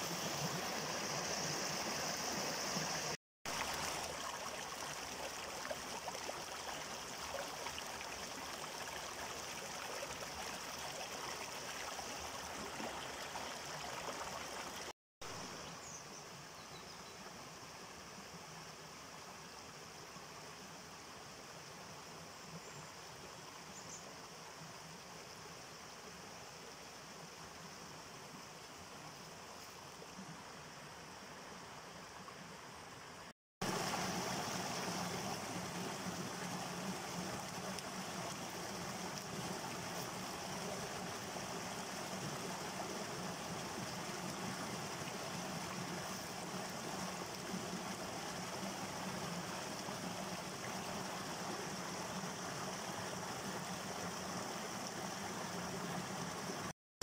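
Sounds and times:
small cascade: 0.0s - 14.9s, 33.6s - 56.7s
stream splashing over rocks: 0.0s - 15.4s, 33.6s - 56.7s.

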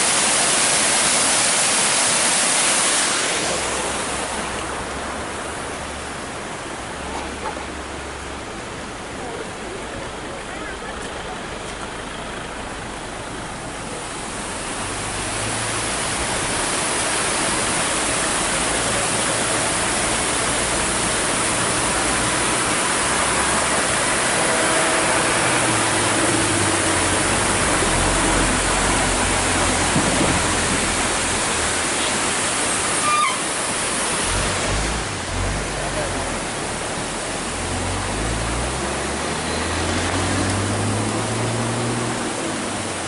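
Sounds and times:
waterfall rushing: 0.0s - 43.0s.

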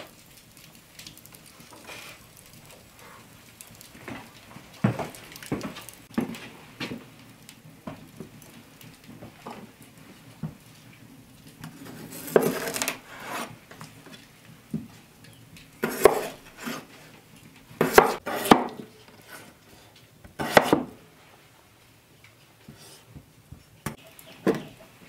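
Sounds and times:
knife slicing potatoes: 15.8s - 16.9s, 17.8s - 19.4s, 20.4s - 21.0s.

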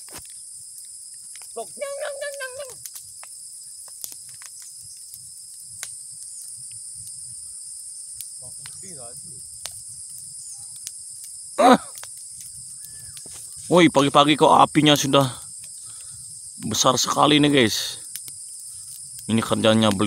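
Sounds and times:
crackling brush fire: 0.0s - 20.0s
insects droning: 0.0s - 20.0s
person's voice: 1.6s - 2.8s, 16.6s - 18.0s, 19.3s - 20.0s.

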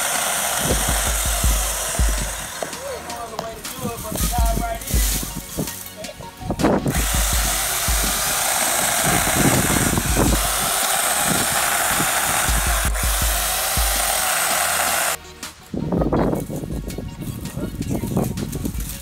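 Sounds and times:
electric chainsaw cutting branches: 0.0s - 6.0s, 6.7s - 15.2s.

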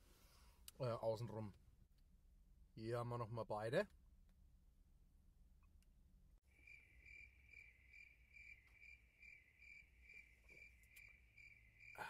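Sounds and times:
cricket chirping: 6.4s - 12.0s.

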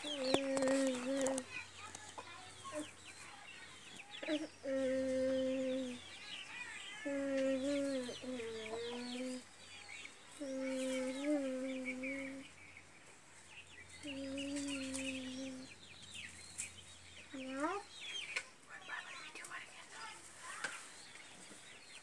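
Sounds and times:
chickens peeping: 0.0s - 22.0s
long low chicken calls: 10.3s - 12.6s.

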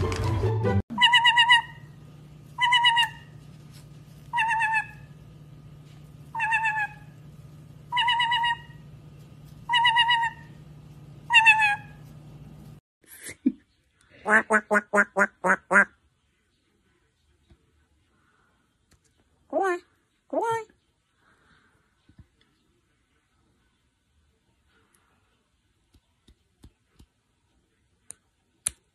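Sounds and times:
parrot wavering call: 0.9s - 2.0s, 2.6s - 3.4s, 4.3s - 5.1s, 6.3s - 7.2s, 7.9s - 8.9s, 9.7s - 10.6s, 11.2s - 12.0s
parrot repeating a word: 19.5s - 20.8s.

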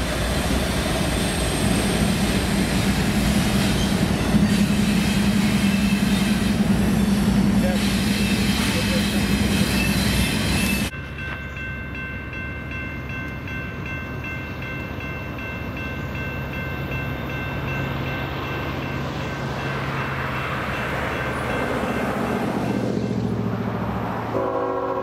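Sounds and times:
approaching train noise: 0.0s - 25.0s
freight train rolling past: 0.0s - 25.0s
crossing bell ringing: 7.4s - 23.4s.

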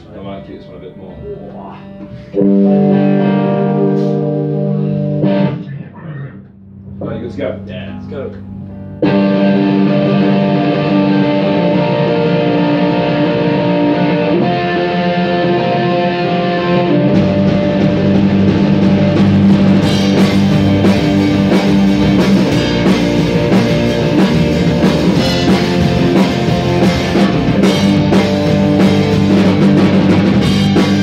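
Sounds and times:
drum kit and cymbal hits: 0.0s - 5.5s, 16.9s - 31.0s
bass guitar: 0.0s - 31.0s
electric guitar chords: 0.0s - 31.0s.

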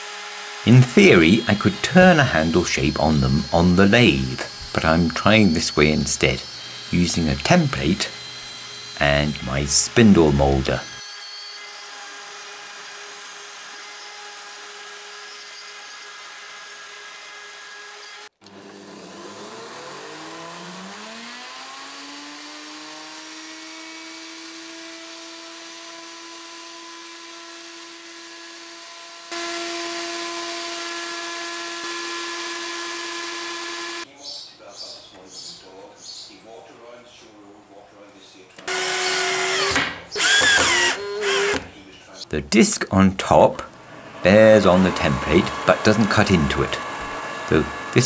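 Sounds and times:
cutter cutting wood: 0.0s - 34.1s, 38.6s - 41.8s, 44.0s - 48.0s
spindle moulder motor whine: 0.0s - 34.1s, 38.6s - 41.7s, 43.8s - 48.0s.

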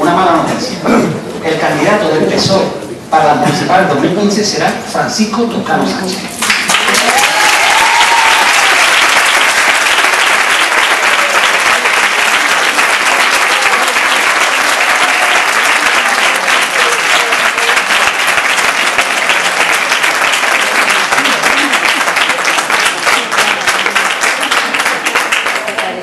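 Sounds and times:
audience applauding: 6.4s - 26.0s
faint voices: 10.7s - 26.0s.

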